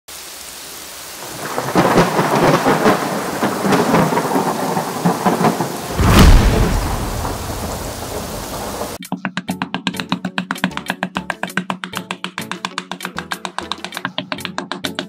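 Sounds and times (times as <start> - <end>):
rain falling: 0.1 - 9.0
thunder rumble: 1.2 - 9.0.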